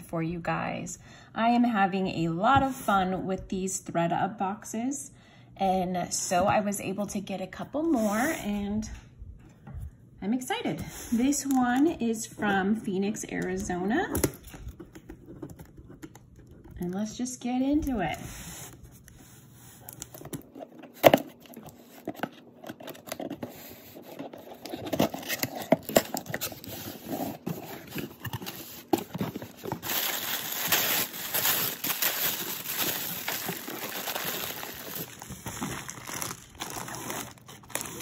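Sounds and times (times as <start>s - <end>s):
tissue paper rustling: 26.4s - 38.0s
plastic bag crackling: 27.9s - 38.0s.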